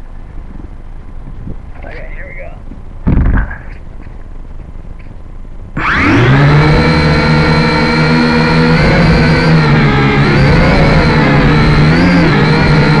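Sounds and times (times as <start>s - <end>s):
drone motors buzzing whine: 0.0s - 13.0s
short thump: 3.0s - 3.8s.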